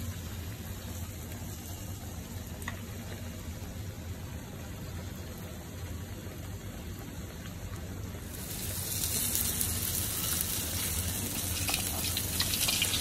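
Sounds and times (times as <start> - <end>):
fish sizzling in hot oil: 8.0 - 13.0.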